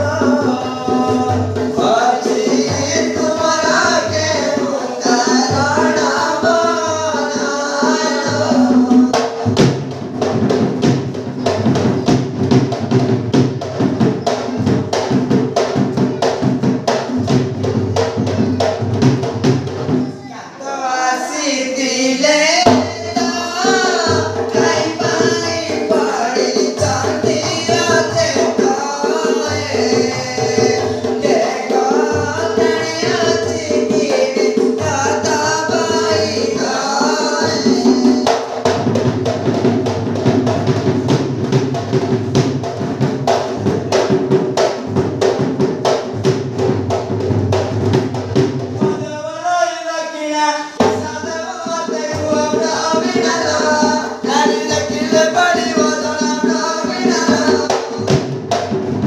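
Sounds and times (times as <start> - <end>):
voices singing folk song: 0.0 - 9.4, 20.3 - 38.7, 48.8 - 58.2
barrel drum playing: 0.0 - 20.3, 21.9 - 49.2, 50.7 - 59.0.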